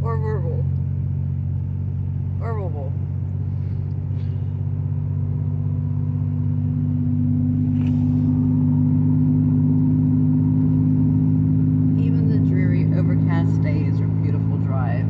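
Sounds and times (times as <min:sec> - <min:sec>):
truck engine drone: 0:00.0 - 0:15.0.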